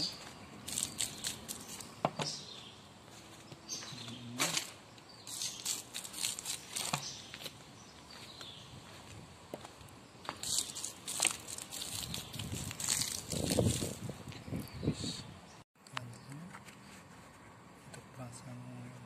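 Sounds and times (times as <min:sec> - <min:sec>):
granules pattering on soil: 0:00.0 - 0:02.0, 0:03.8 - 0:08.2, 0:10.2 - 0:14.1.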